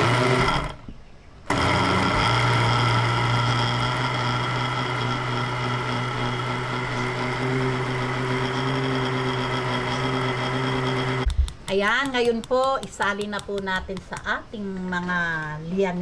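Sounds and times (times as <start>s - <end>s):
blender motor running: 0.0s - 0.8s, 1.5s - 11.3s.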